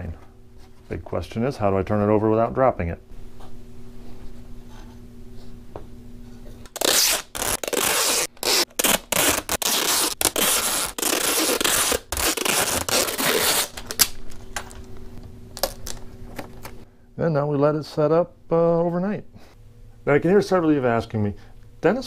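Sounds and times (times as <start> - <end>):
tape tearing off a roll: 6.6 - 14.7.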